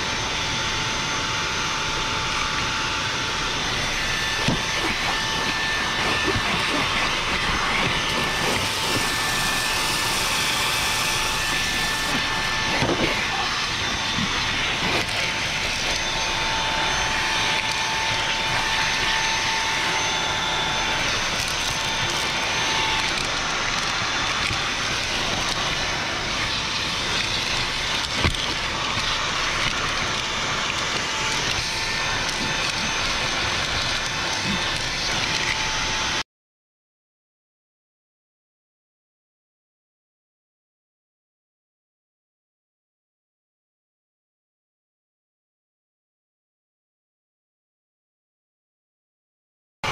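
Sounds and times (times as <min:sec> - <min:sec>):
handheld vacuum motor whine: 0:00.0 - 0:36.2.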